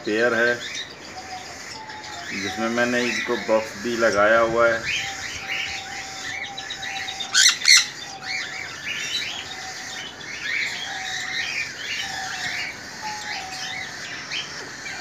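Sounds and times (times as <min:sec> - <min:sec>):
birds chirping: 0:00.0 - 0:15.0
shrill bird screeches: 0:04.8 - 0:09.8.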